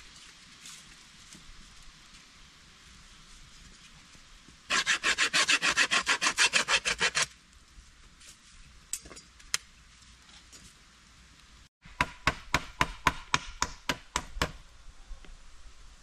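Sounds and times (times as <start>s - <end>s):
hand saw cutting wood: 4.7s - 7.3s.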